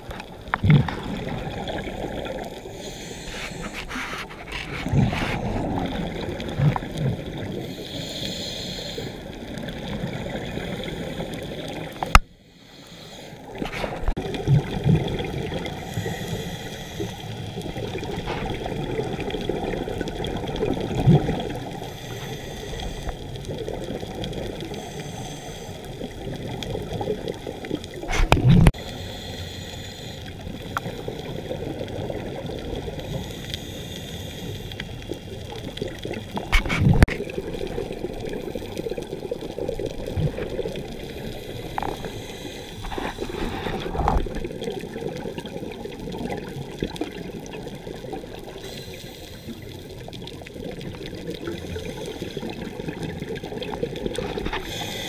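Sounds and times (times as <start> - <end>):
scuba exhaust bubbles rushing: 0.0 - 7.8, 13.5 - 21.9, 34.9 - 55.0
underwater hiss with crackling: 0.0 - 55.0.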